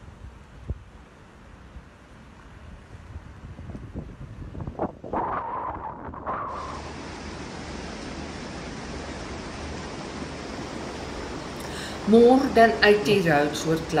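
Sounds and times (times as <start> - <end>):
wind buffeting microphone: 0.0 - 12.6
floodwater rushing across road: 6.5 - 14.0.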